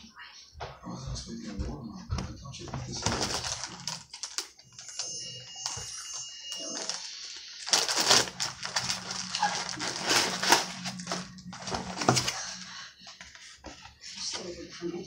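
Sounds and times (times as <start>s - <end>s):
food packaging crinkling: 2.9s - 13.8s.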